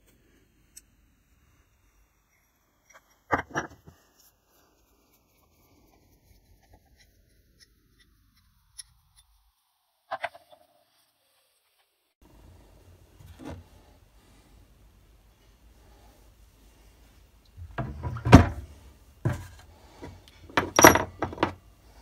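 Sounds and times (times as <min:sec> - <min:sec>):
handling of metal parts: 0:20.4 - 0:21.6
metal vice clattering on concrete: 0:20.5 - 0:21.6.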